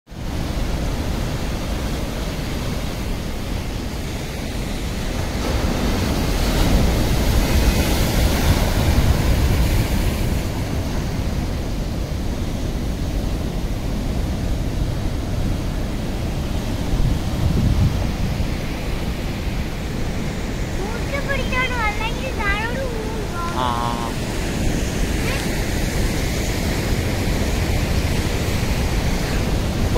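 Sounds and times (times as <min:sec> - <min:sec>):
sea surf breaking on rocks: 0:00.2 - 0:29.9
wind buffeting microphone: 0:14.4 - 0:23.4
wave crashing: 0:15.7 - 0:29.9.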